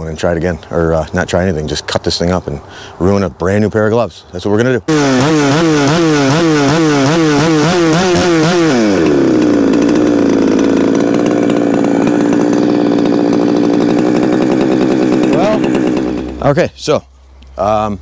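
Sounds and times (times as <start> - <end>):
chainsaw running: 4.9 - 16.8.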